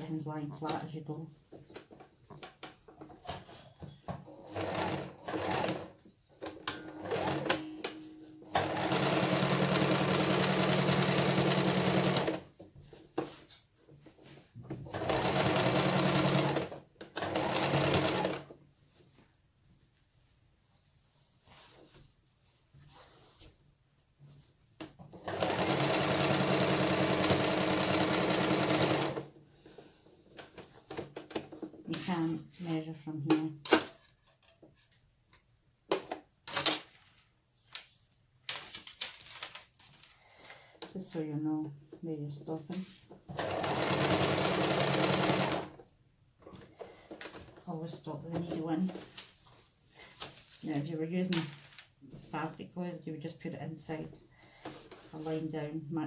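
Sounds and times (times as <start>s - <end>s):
sewing machine stitching: 4.2s - 7.8s, 8.5s - 12.5s, 14.8s - 18.5s, 25.1s - 29.3s, 43.3s - 45.8s.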